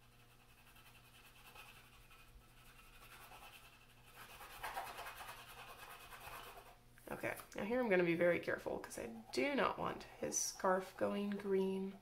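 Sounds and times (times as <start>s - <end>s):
crayon scratching on paper: 0.0s - 6.8s.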